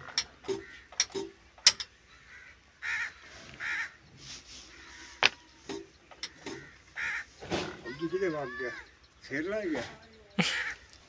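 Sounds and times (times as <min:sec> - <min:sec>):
crow cawing: 0:00.0 - 0:01.1, 0:01.7 - 0:04.0, 0:04.7 - 0:11.0
metallic lever clicks: 0:00.0 - 0:01.9.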